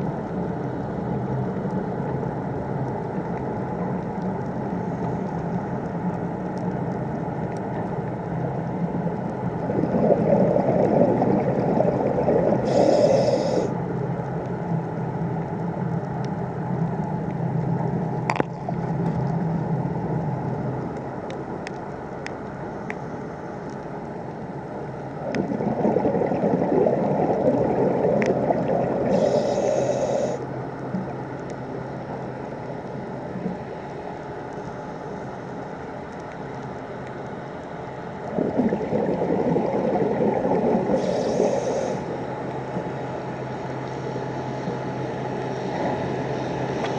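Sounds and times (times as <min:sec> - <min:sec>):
steady underwater rush: 0:08.8 - 0:13.8, 0:25.0 - 0:31.1, 0:38.1 - 0:46.9
bubbling exhaled air: 0:09.6 - 0:13.8, 0:25.1 - 0:30.5, 0:38.2 - 0:42.2
regulator inhalation hiss: 0:12.6 - 0:13.7, 0:29.1 - 0:30.4, 0:41.0 - 0:42.1.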